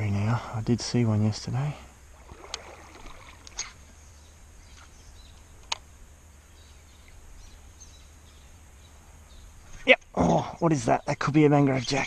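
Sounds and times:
faint clicks: 0:04.8 - 0:05.9.

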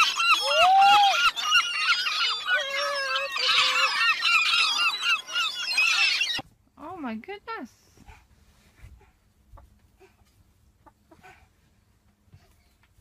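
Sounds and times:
gulls calling: 0:00.0 - 0:06.4.

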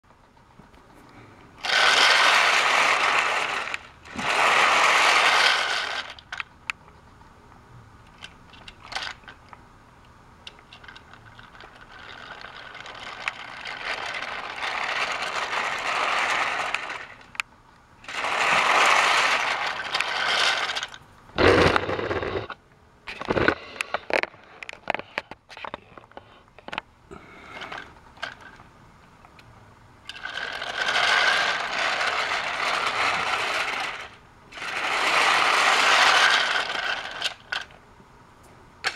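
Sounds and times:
toy train rattling on plastic track: 0:01.6 - 0:06.5, 0:08.1 - 0:09.5, 0:10.5 - 0:17.4, 0:18.0 - 0:22.6, 0:27.6 - 0:28.6, 0:30.1 - 0:37.8.

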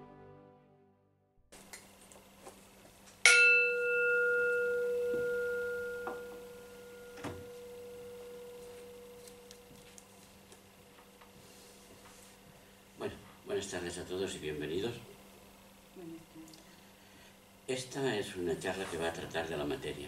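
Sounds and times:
singing bowl ringing: 0:03.3 - 0:09.5.

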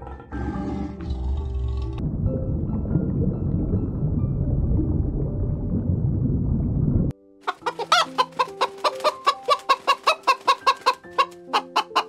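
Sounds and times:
soft background music: 0:00.0 - 0:06.4, 0:07.1 - 0:12.0
low rumble: 0:01.0 - 0:07.1
hen clucking: 0:07.5 - 0:12.0.

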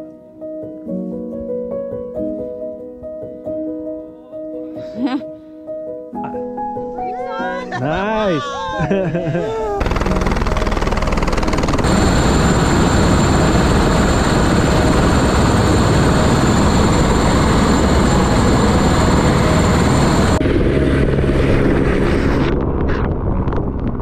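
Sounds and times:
helicopter rotor wash: 0:09.8 - 0:22.5
high turbine whine: 0:09.8 - 0:23.7.

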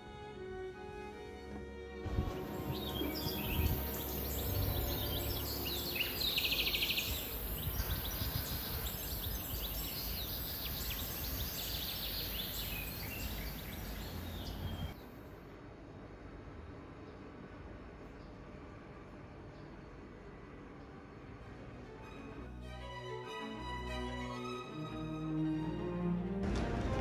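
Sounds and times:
outdoor background hiss: 0:00.0 - 0:27.0
small birds chirping: 0:02.2 - 0:15.1.

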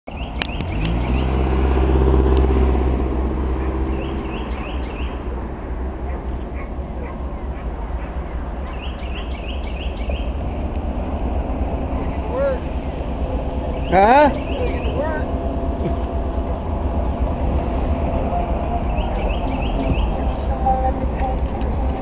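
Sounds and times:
bird chirps: 0:00.1 - 0:01.4, 0:03.6 - 0:10.6, 0:11.2 - 0:16.6, 0:17.6 - 0:20.9
low engine hum: 0:00.1 - 0:22.0
traffic rumble: 0:00.1 - 0:22.0.

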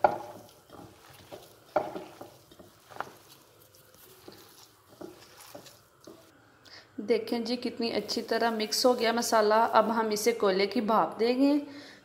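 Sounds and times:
hand squelching raw mince: 0:00.0 - 0:06.3.

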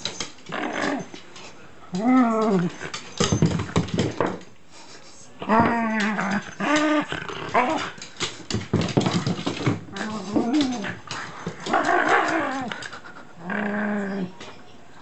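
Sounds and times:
dog play-growling and whining: 0:00.4 - 0:01.2, 0:01.9 - 0:03.5, 0:05.4 - 0:08.1, 0:09.9 - 0:14.4.

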